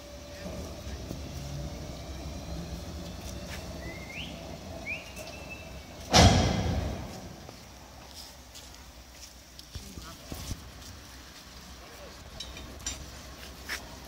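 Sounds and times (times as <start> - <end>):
tram wheels squealing: 0.0 - 7.8
tram rolling rumble: 0.0 - 14.0
sudden loud burst of noise: 5.4 - 7.5.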